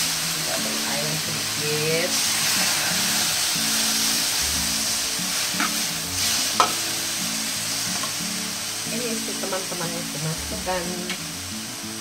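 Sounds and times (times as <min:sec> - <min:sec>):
vegetables sizzling in hot oil: 0:00.0 - 0:12.0
metal spatula scraping a wok: 0:02.1 - 0:06.9.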